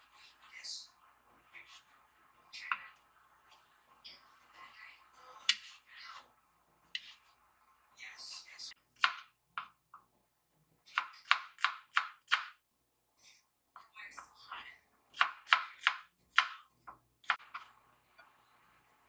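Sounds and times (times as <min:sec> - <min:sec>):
knife chopping on cutting board: 0:05.4 - 0:05.8, 0:07.0 - 0:07.2, 0:09.0 - 0:09.8, 0:10.9 - 0:12.6, 0:15.1 - 0:17.7.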